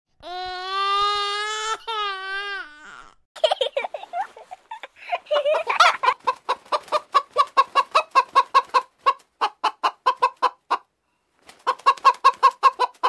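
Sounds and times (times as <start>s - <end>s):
hen clucking: 5.4s - 10.9s, 11.6s - 13.0s.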